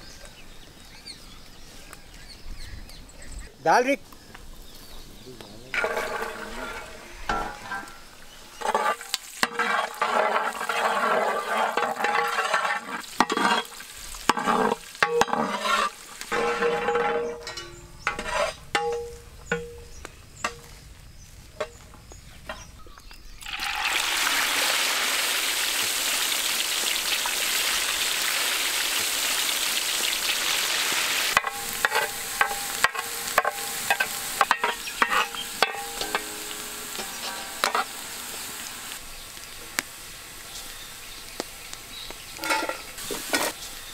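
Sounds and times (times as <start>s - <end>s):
ladle scraping in wok: 5.7s - 19.2s, 31.3s - 38.5s, 42.4s - 43.6s
garlic sizzling in oil: 5.8s - 18.7s, 21.8s - 43.9s
metal scoop clattering in pot: 5.8s - 19.8s, 31.3s - 37.9s.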